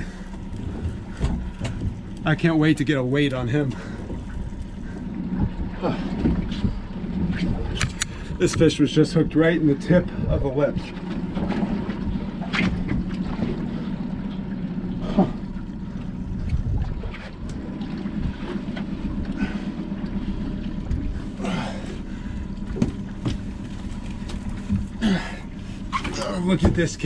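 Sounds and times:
outboard motor idling: 0.0s - 27.0s
wind buffeting microphone: 3.8s - 13.6s, 16.1s - 18.4s.

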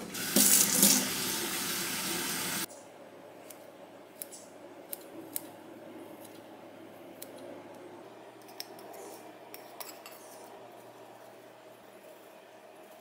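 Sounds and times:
scissors snipping: 4.2s - 5.5s.

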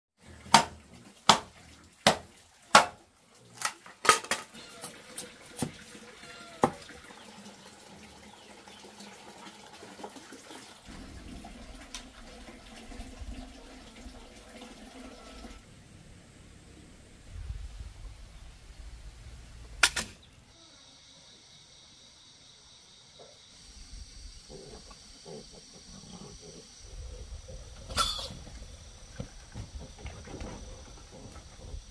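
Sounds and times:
machete chopping bamboo: 0.5s - 3.0s.

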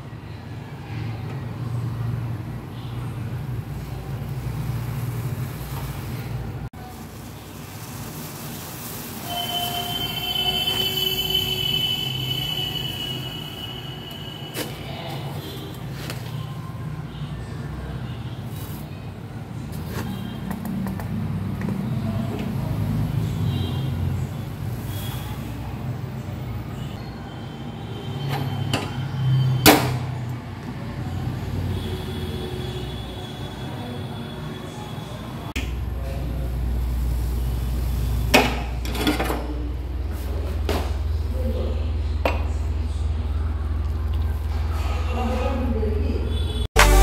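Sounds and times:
milk boiling and frothing: 3.6s - 11.6s.

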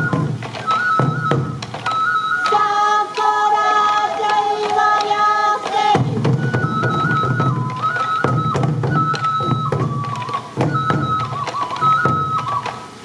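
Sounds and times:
bamboo flute melody: 0.0s - 13.0s
taiko drum beats: 0.0s - 13.0s
high voice singing: 2.4s - 6.4s.

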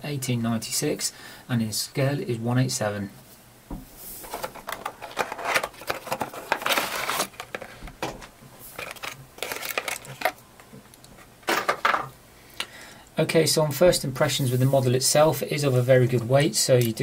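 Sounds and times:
cardboard packaging rustling and scraping: 3.9s - 10.4s.

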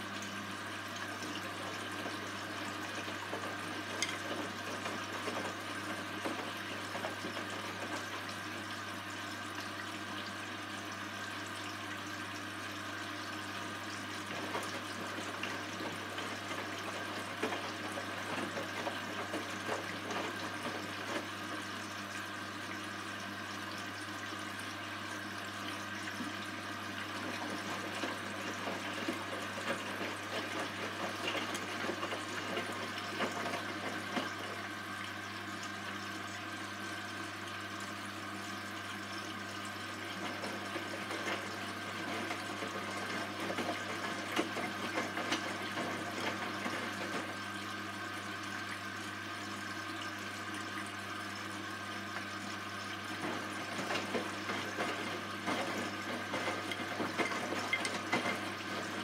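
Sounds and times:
washing machine motor hum: 0.0s - 59.0s
water sloshing in washing machine: 0.0s - 59.0s.

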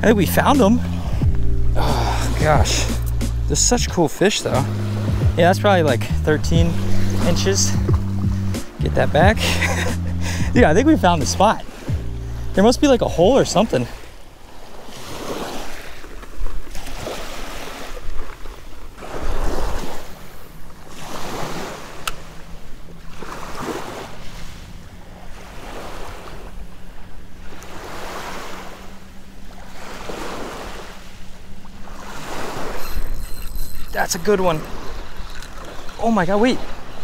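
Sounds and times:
wind buffeting microphone: 0.0s - 3.8s
small waves lapping on pebbles: 13.8s - 37.0s.

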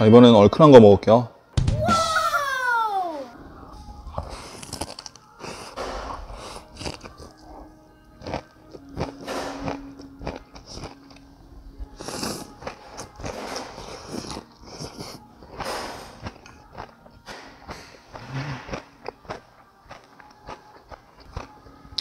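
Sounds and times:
chewing: 4.1s - 11.3s, 11.9s - 22.0s
person slurping noodles: 12.0s - 12.8s, 13.8s - 15.2s, 18.1s - 18.9s.

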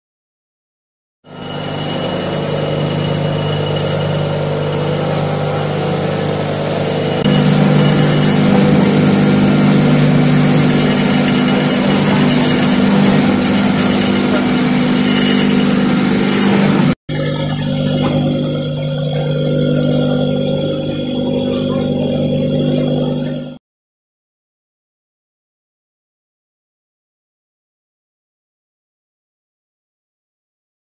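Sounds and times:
vegetable shredding machine motor: 1.3s - 23.6s.

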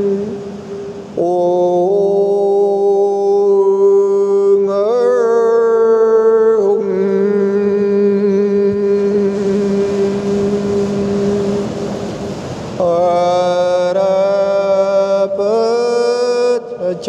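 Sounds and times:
person chanting in long notes: 0.0s - 12.2s, 12.8s - 17.0s
steady drone: 6.8s - 13.1s.

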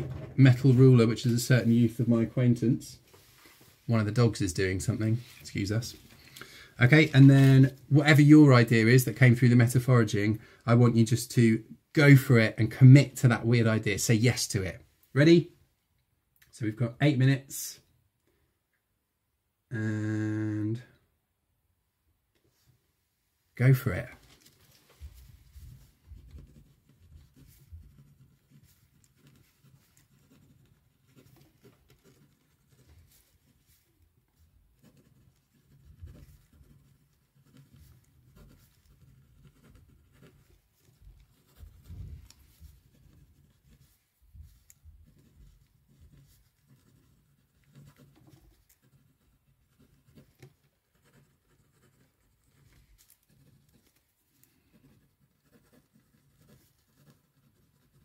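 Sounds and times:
handwriting scratching on paper: 25.0s - 58.0s.

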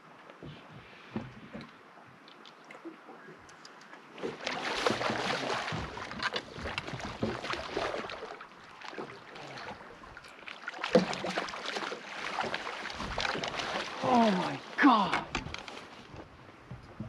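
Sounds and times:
water lapping against boat hull: 0.0s - 17.0s
fishing gear clicks and knocks: 6.1s - 7.3s, 15.0s - 17.0s.

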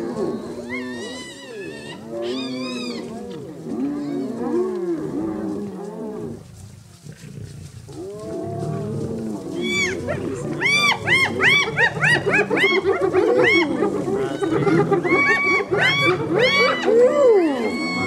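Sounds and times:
low growling: 0.0s - 18.0s
hyenas yelping and whooping: 0.2s - 3.1s, 9.5s - 18.0s.

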